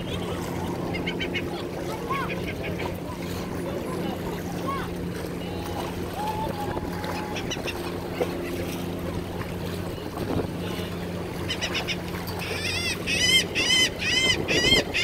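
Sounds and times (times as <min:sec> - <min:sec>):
low motor drone: 0:00.0 - 0:15.0
bird calling: 0:06.2 - 0:08.0, 0:11.3 - 0:15.0.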